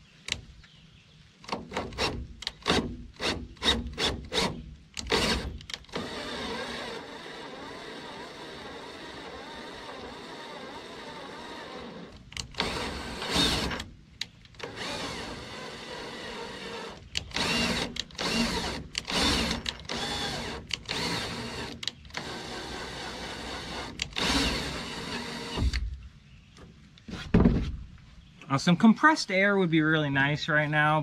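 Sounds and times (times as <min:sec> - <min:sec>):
cordless drill motor whirring: 0:05.0 - 0:13.9, 0:14.6 - 0:25.8.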